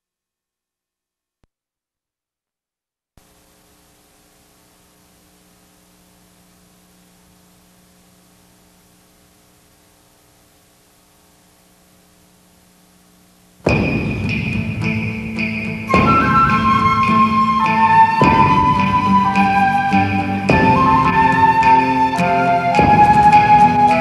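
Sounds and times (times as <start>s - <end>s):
low electrical hum: 3.2s - 16.0s
faint hiss: 3.2s - 24.0s.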